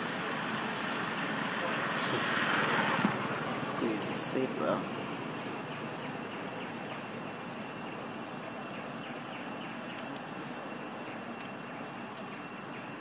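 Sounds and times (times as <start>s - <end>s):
faint high-pitched whine: 0.0s - 13.0s
faint ticks: 11.4s - 12.6s.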